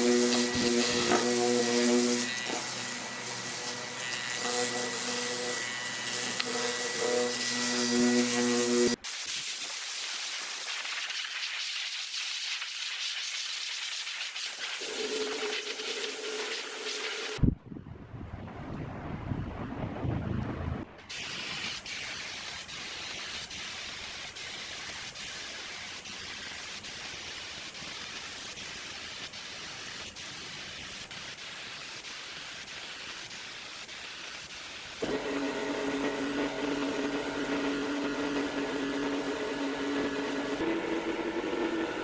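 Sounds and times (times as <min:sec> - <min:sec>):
machine humming with tones: 0:00.0 - 0:09.0, 0:35.0 - 0:42.0
steady hiss: 0:08.8 - 0:17.4, 0:21.1 - 0:35.0.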